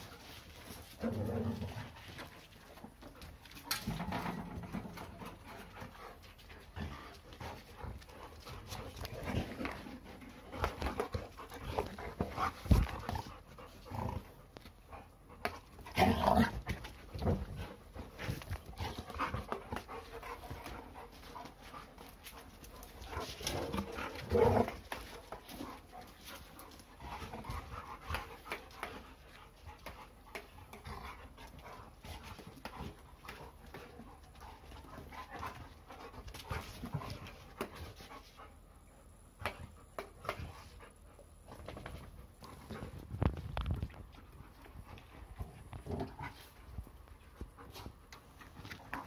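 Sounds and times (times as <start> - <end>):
dogs panting: 0.0 - 49.0
dogs scuffling: 15.5 - 38.4.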